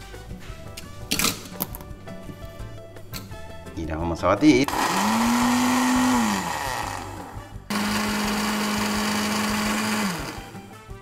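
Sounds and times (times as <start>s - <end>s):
kitchen blender motor: 4.6s - 10.7s.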